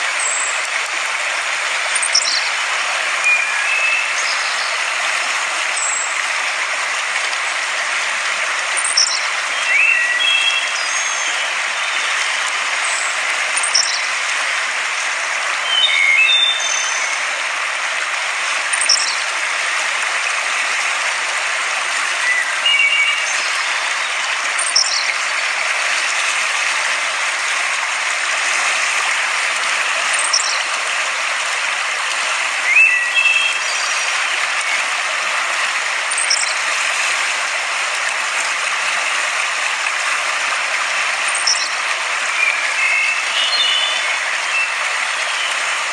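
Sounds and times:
river water rushing over rocks: 0.0s - 45.9s
bird chirps: 8.8s - 11.4s, 12.9s - 14.0s, 15.7s - 17.1s, 18.8s - 19.2s, 30.2s - 30.6s, 41.3s - 41.8s.

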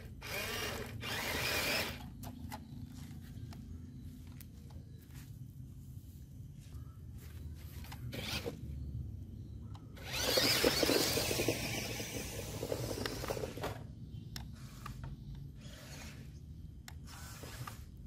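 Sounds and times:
model truck motor whirring: 0.0s - 2.4s, 8.1s - 8.6s, 10.0s - 13.9s, 14.8s - 17.9s.

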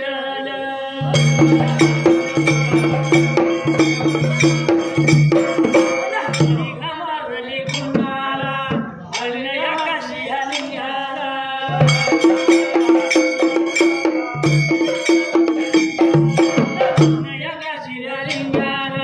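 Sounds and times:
men singing together: 0.0s - 3.2s, 5.9s - 13.4s
dhol drum beat: 1.0s - 7.0s, 7.6s - 10.8s, 11.7s - 19.0s
frame drum beat: 1.1s - 6.9s, 11.7s - 17.4s.

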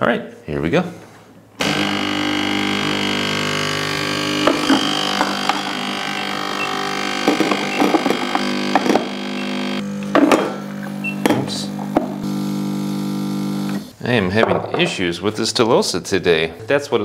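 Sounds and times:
espresso machine pump humming: 1.6s - 13.9s.

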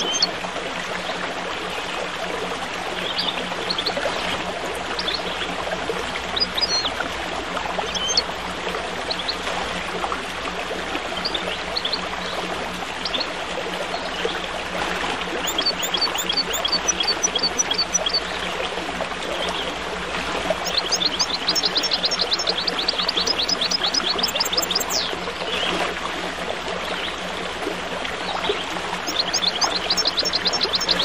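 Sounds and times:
small birds chirping: 0.0s - 0.3s, 7.9s - 8.2s, 15.4s - 18.3s, 20.6s - 25.7s, 29.0s - 31.0s
stream water babbling: 0.0s - 31.0s
low hum: 1.1s - 31.0s.

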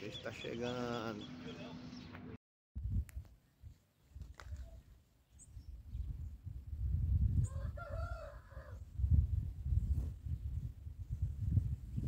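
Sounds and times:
small birds chirping: 0.0s - 2.4s, 3.4s - 6.4s
wind rumble on microphone: 2.8s - 12.0s
rooster crowing: 7.4s - 8.8s.

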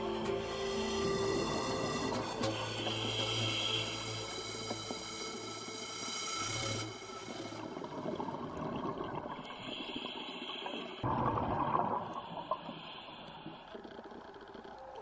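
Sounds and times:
underwater bubbling: 6.6s - 15.0s.

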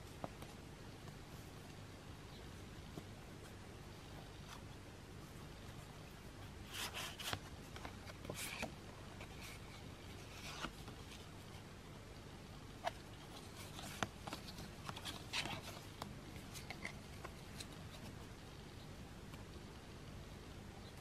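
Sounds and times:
photo cards rustling: 2.9s - 18.6s.

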